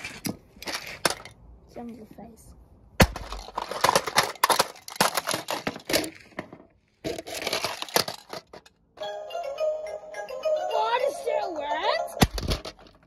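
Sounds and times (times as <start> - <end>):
hammer smashing plastic: 3.0 - 6.2, 12.2 - 13.0.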